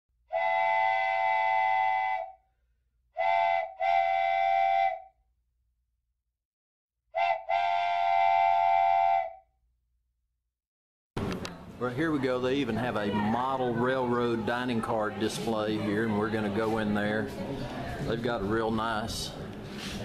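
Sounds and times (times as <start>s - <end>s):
train whistle blasts: 0.3s - 2.4s, 3.2s - 5.1s, 7.1s - 9.5s.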